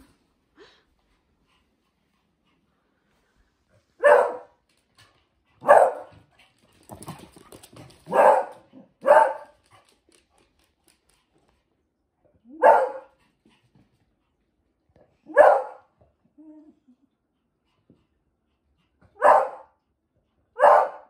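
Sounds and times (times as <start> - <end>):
dog barking: 4.0 - 4.6, 5.6 - 6.1, 8.1 - 9.5, 12.6 - 13.1, 15.3 - 15.9, 19.2 - 19.8, 20.6 - 21.0.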